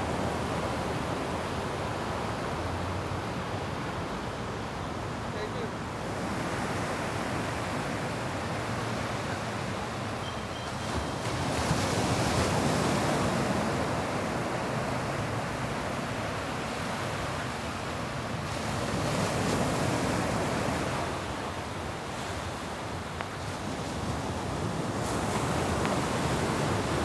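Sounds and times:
waves washing up a beach: 0.0s - 27.0s.

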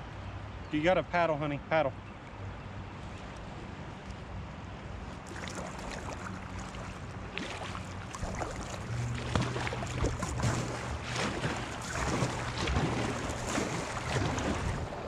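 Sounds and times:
river water rushing and splashing: 5.2s - 15.0s.

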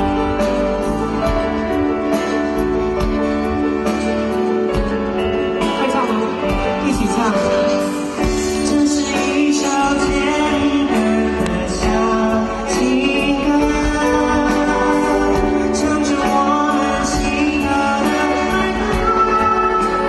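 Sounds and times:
live band music: 0.0s - 20.0s
lead singer singing: 5.6s - 20.0s.

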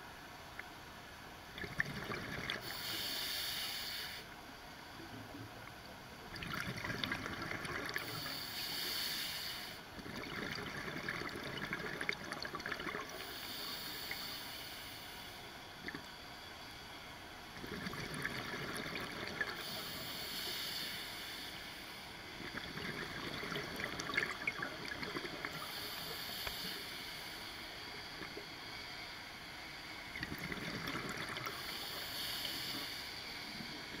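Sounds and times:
exhaled bubbles gurgling underwater: 1.5s - 3.0s, 6.2s - 8.4s, 10.0s - 14.2s, 17.6s - 20.2s, 22.3s - 26.4s, 30.1s - 32.7s
regulator hiss: 2.6s - 4.4s, 7.8s - 10.0s, 13.1s - 17.2s, 19.0s - 22.5s, 23.7s - 30.3s, 31.0s - 34.0s.

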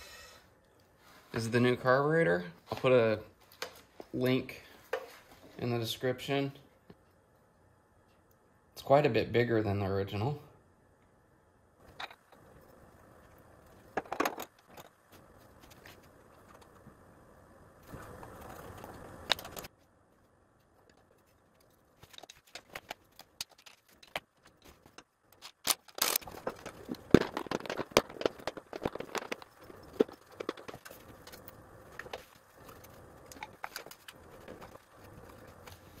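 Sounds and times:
metal and plastic parts clicking: 20.8s - 34.8s.

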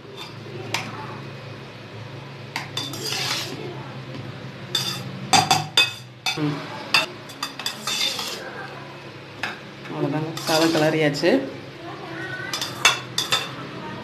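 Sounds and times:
metal spatula scraping steel bowl: 0.1s - 0.4s, 2.8s - 3.6s, 4.7s - 5.1s, 7.0s - 8.5s, 10.3s - 11.0s, 12.5s - 13.5s.

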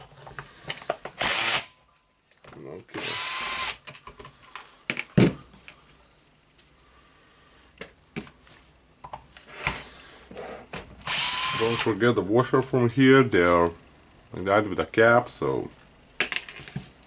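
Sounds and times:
cordless drill spinning: 1.2s - 1.7s, 3.0s - 3.8s, 11.0s - 11.9s.

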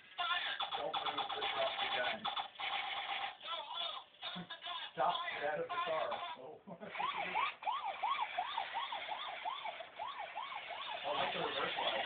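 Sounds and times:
toy electronic siren wailing: 6.9s - 12.0s.

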